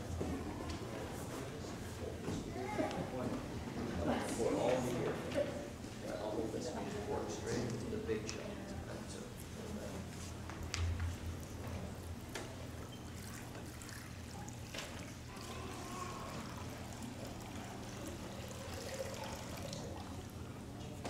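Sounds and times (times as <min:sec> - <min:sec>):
water pouring into a basin: 0:13.1 - 0:20.4.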